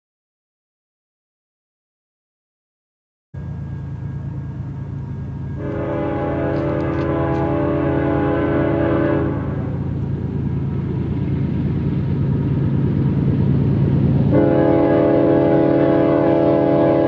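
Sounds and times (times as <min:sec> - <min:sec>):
locomotive chime air horn: 0:03.4 - 0:10.0, 0:14.3 - 0:17.0
diesel engine drone: 0:03.4 - 0:17.0.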